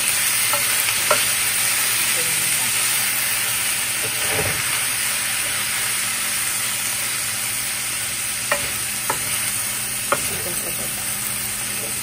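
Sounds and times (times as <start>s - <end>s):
food sizzling in a wok: 0.0s - 12.0s
wooden spatula knocking on pan: 8.5s - 9.4s, 10.1s - 10.9s.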